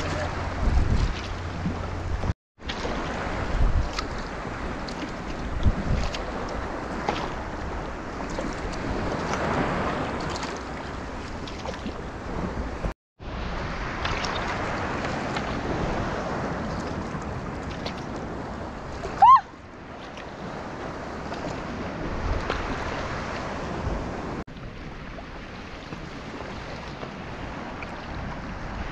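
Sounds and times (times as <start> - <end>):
water lapping around kayak: 0.0 - 28.9
wind on microphone: 0.0 - 28.9.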